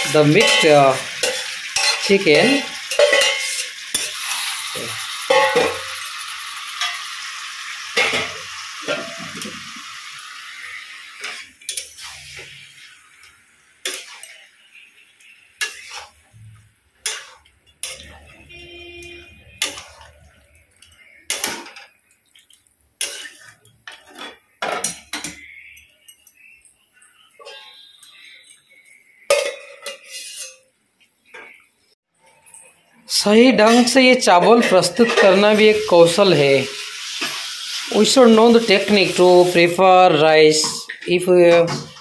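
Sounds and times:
spatula scraping and knocking pan: 0.0 - 2.1
food sizzling in a pan: 0.0 - 30.6, 33.3 - 42.0.

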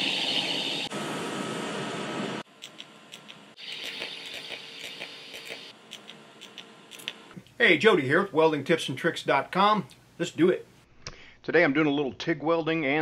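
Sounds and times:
welding arc buzzing and hissing: 0.0 - 7.3.

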